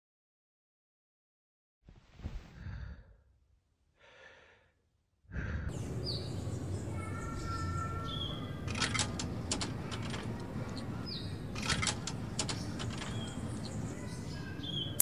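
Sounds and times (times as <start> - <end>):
person sighing: 5.3 - 5.7
outdoor background noise: 5.3 - 15.0.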